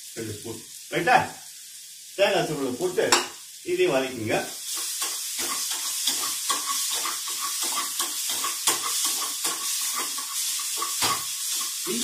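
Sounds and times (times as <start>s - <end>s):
food sizzling in oil: 0.0s - 12.0s
spoon scraping a pan: 4.7s - 12.0s.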